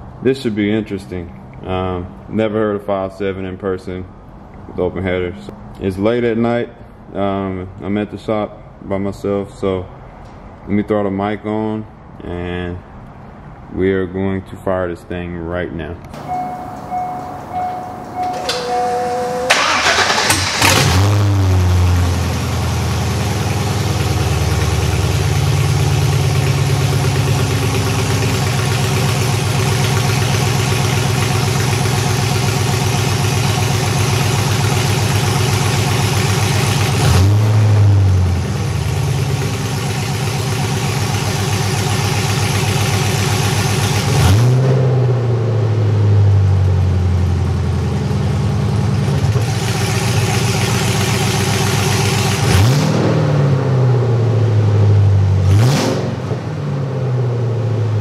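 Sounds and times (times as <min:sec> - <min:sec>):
car engine starting: 0:16.1 - 0:58.0
short electronic tones: 0:16.2 - 0:19.6
car engine idling and revving: 0:16.2 - 0:58.0.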